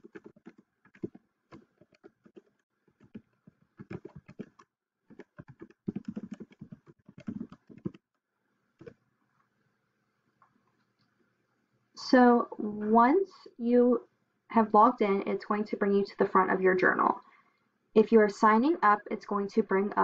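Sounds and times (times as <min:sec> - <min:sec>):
typing on computer keyboard: 0:00.0 - 0:08.0.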